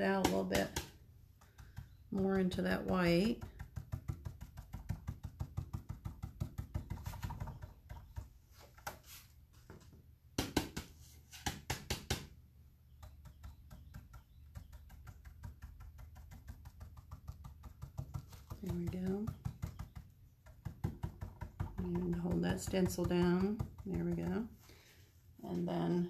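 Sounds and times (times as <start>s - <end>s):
stencil brush tapping: 0.0s - 9.2s, 12.9s - 24.6s
brush dabbing on paper plate: 0.0s - 9.5s, 12.9s - 24.7s.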